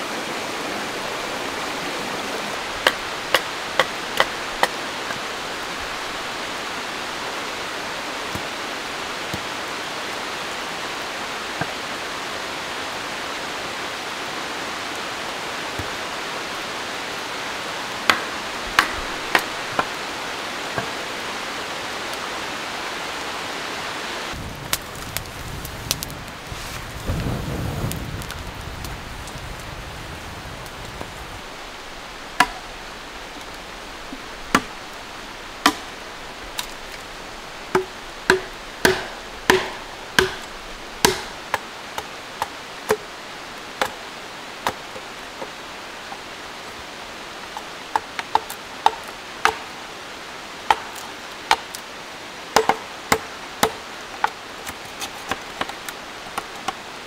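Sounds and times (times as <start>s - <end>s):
steady background hiss: 0.0s - 57.0s
machete chopping bamboo: 18.1s - 19.9s, 35.6s - 35.9s, 37.7s - 41.6s, 52.6s - 55.8s.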